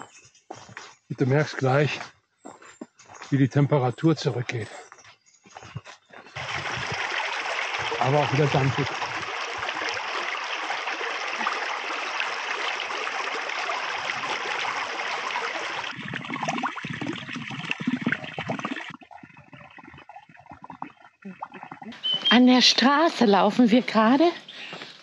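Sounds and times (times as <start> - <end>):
stream flowing over stones: 6.4 - 22.0.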